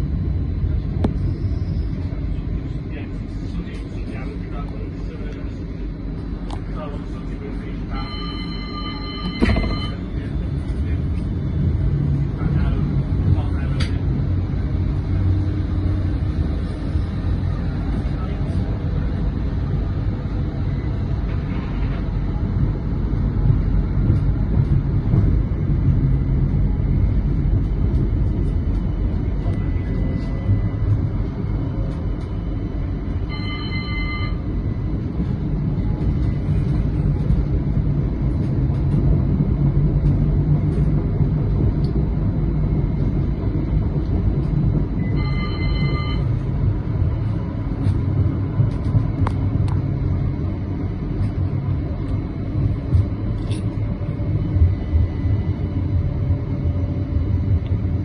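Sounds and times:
tram rumbling on track: 0:00.0 - 0:58.0
ringing signal tones: 0:07.9 - 0:10.1, 0:33.2 - 0:34.6, 0:45.0 - 0:46.4.

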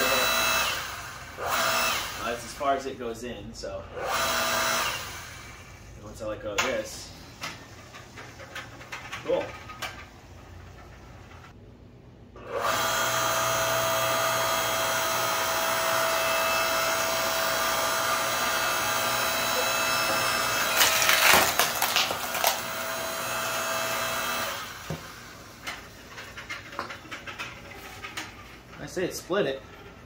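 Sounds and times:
log splitter motor whining hum: 0:00.0 - 0:02.6, 0:04.0 - 0:06.0, 0:12.4 - 0:30.0
wood cracking as it splits: 0:20.5 - 0:22.7.

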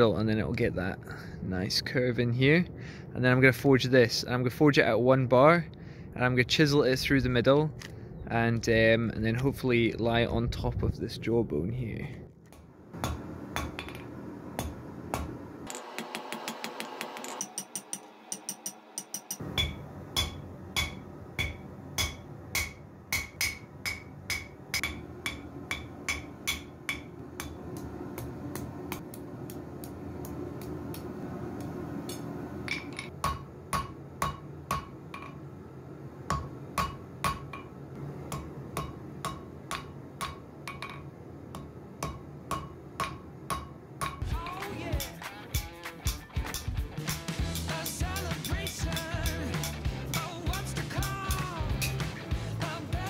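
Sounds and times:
hammer striking steel on anvil: 0:13.0 - 0:29.2, 0:32.1 - 0:35.4, 0:36.3 - 0:37.7, 0:38.3 - 0:52.2.

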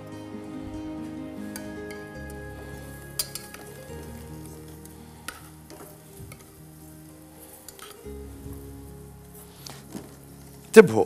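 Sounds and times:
soft background music: 0:00.0 - 0:11.0
metal tongs clicking: 0:03.2 - 0:04.2, 0:07.7 - 0:08.0.

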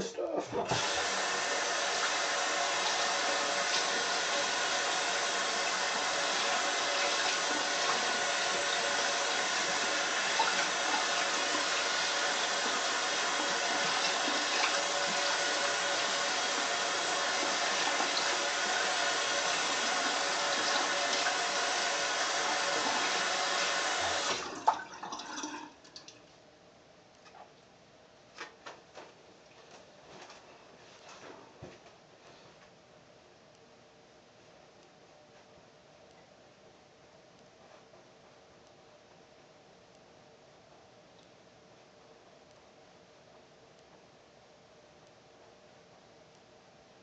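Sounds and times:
tap water running into sink: 0:00.6 - 0:26.2.

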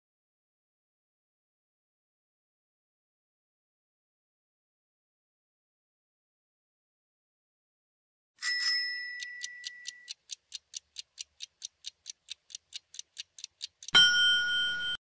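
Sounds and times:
ringing chime: 0:08.4 - 0:10.1, 0:13.9 - 0:15.0
fast clock ticks: 0:08.6 - 0:15.0
loud ringing alarm: 0:14.0 - 0:15.0.

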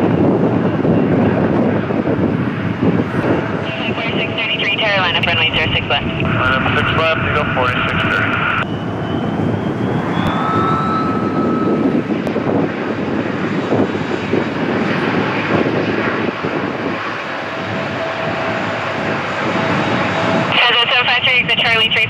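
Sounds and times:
jet engine roaring: 0:00.0 - 0:22.0
faint rising whine: 0:03.0 - 0:12.6.

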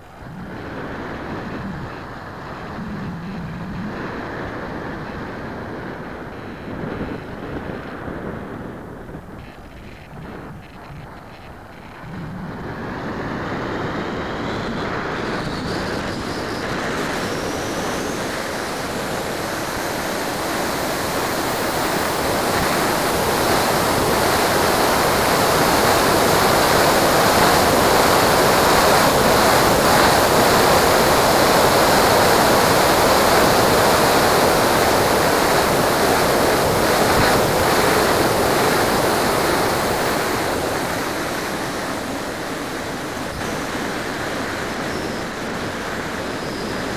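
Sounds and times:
faint rising whine: 0:08.5 - 0:46.9
airflow rushing: 0:11.9 - 0:46.9.

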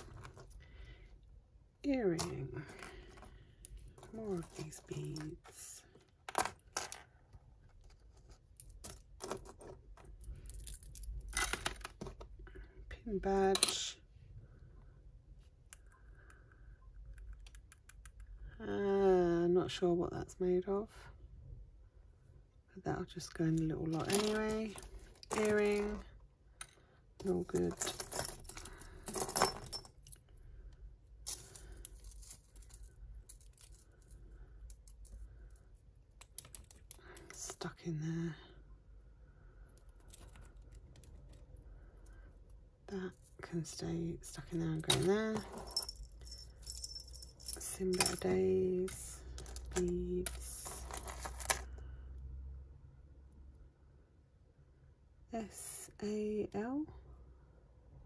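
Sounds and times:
jewellery clinking and jingling: 0:02.0 - 0:07.1, 0:23.4 - 0:30.3, 0:31.2 - 0:37.5, 0:43.1 - 0:51.8.

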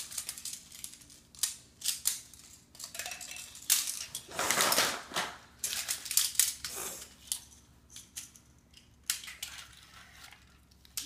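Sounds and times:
plastic pieces rattling: 0:00.0 - 0:11.0.

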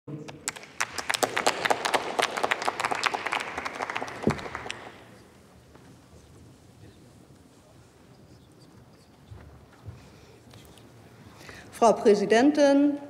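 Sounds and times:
audience applause: 0:00.3 - 0:05.2.

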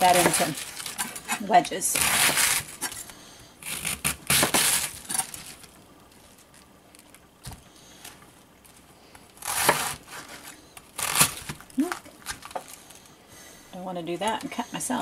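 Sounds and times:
knife crunching through cabbage: 0:00.0 - 0:07.6, 0:09.4 - 0:13.0.

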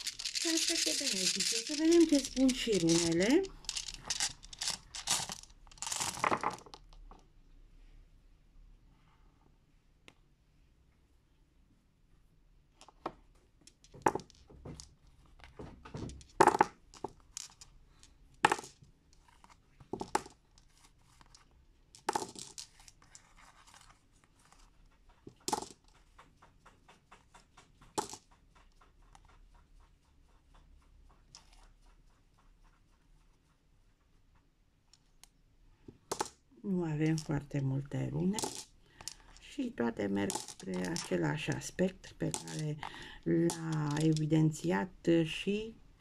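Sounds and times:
stones clicking together: 0:00.0 - 0:07.2, 0:12.8 - 0:23.2, 0:25.2 - 0:28.3, 0:36.1 - 0:36.4, 0:37.1 - 0:37.5, 0:38.2 - 0:44.6.

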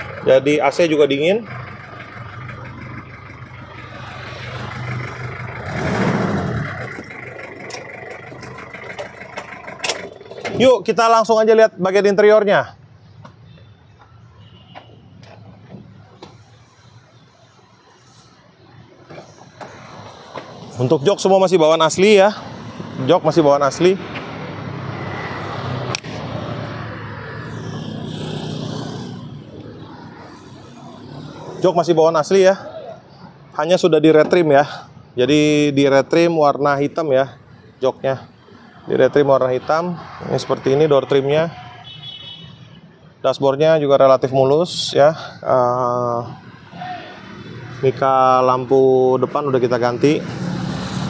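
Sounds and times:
diesel engine idling: 0:00.0 - 0:11.3.

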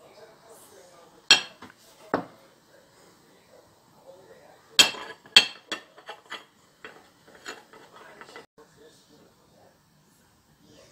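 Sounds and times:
ceramic dishes clinking: 0:01.3 - 0:02.3, 0:04.8 - 0:08.5.

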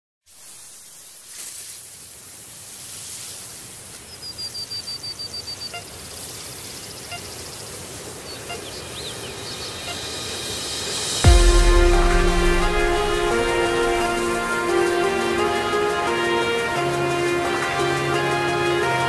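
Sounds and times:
steady outdoor hiss: 0:00.3 - 0:19.0
small bird trilling and chirping: 0:04.0 - 0:10.0.

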